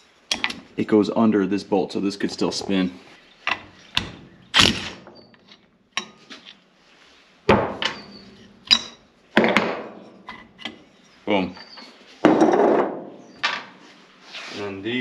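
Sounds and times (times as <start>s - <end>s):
tools clanking on a workbench: 0.3s - 0.7s, 3.4s - 6.6s, 7.5s - 10.9s, 11.5s - 13.8s.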